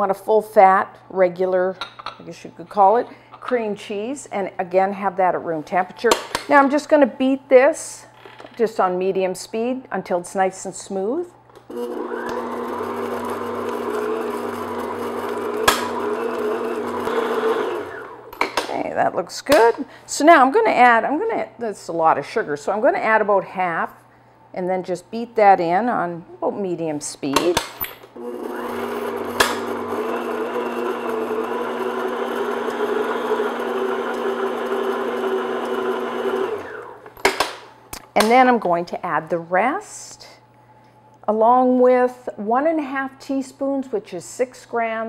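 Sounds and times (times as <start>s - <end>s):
stand mixer running: 11.7s - 18.4s, 28.2s - 37.0s.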